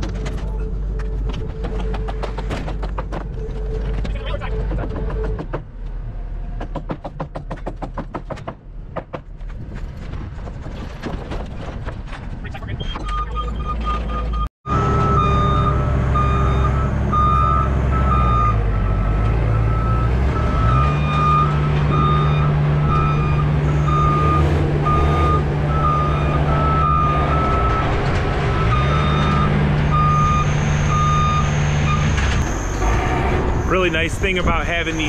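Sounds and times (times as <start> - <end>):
lift motion alarm beeping: 12.8 - 27.9, 28.6 - 33.1.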